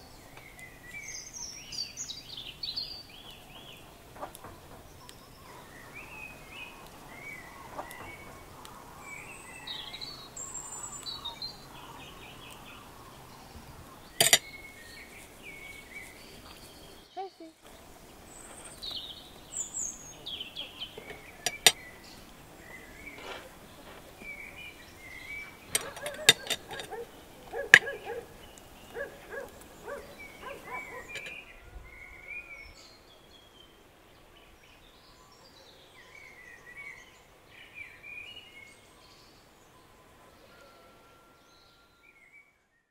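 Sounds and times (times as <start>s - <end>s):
birds chirping: 0.0s - 42.9s
sharp clicks and knocks: 3.6s - 5.2s, 14.2s - 14.4s, 21.0s - 21.8s, 25.7s - 28.0s.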